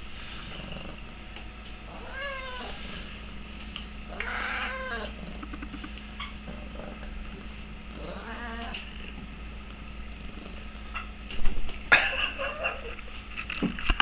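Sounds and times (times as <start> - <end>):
cat meowing: 1.9 - 2.8, 4.1 - 5.1.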